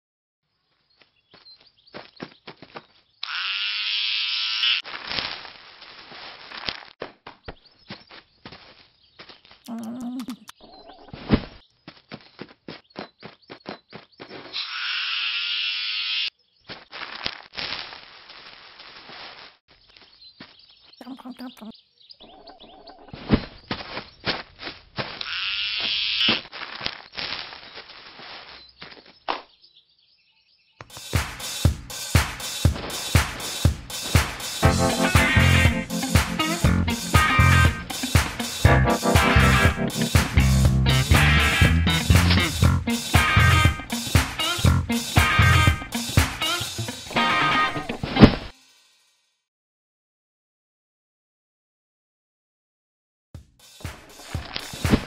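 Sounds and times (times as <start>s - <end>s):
electric clippers buzzing: 3.2s - 4.8s
crackly rustling: 26.4s - 29.3s.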